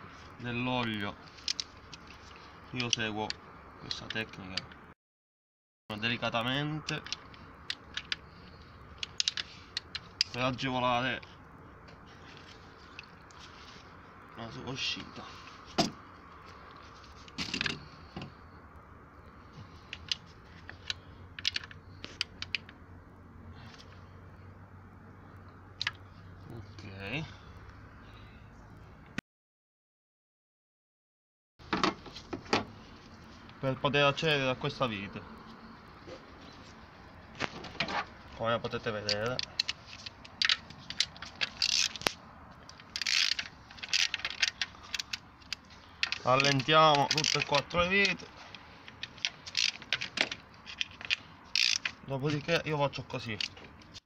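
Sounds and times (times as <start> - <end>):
metal tool clicking and scraping: 6.8 - 10.4, 39.0 - 52.0.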